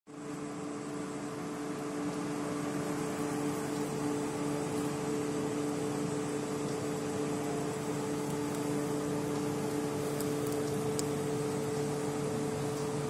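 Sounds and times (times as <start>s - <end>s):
steady machine hum: 0.1s - 13.0s.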